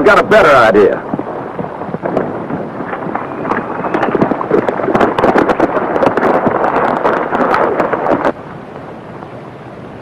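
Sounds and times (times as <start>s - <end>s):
horses galloping: 0.4s - 8.4s.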